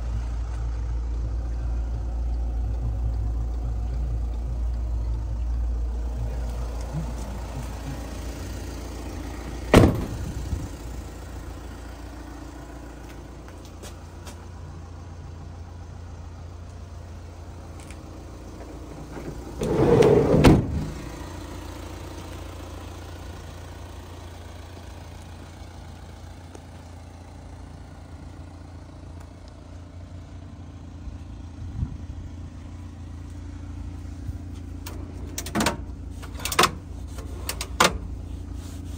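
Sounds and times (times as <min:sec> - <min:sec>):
sliding door rolling open: 0:19.1 - 0:21.0.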